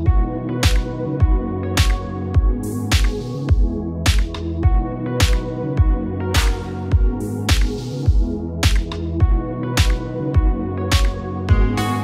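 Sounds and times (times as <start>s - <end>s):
kick drum beat: 0.1s - 11.8s.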